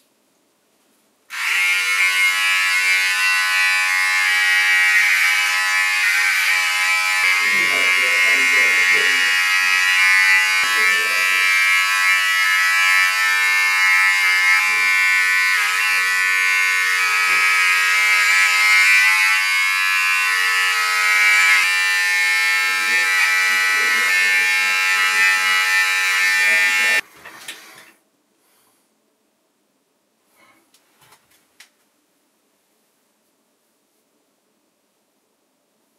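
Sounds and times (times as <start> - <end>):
electric hair trimmer buzzing: 1.3 - 27.0.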